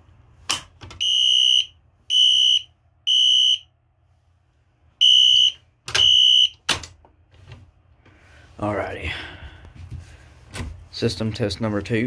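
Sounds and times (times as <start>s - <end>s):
muffled fire alarm horn beeps: 1.0s - 3.7s, 5.0s - 6.6s.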